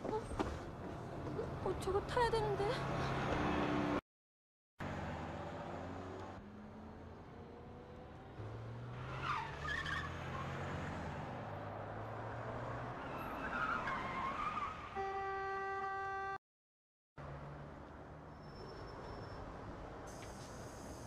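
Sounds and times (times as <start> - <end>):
car horn blast: 15.0 - 16.4.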